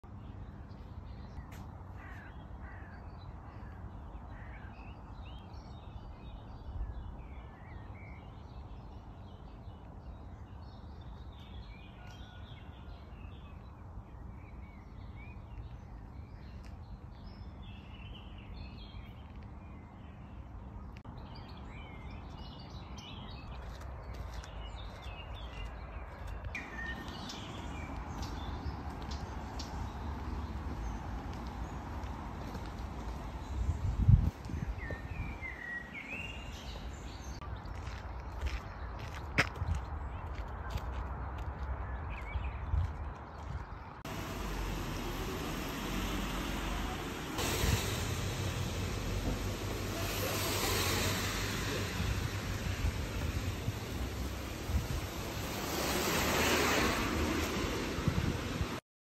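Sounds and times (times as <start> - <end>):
steady low rumble: 44.0 - 58.8.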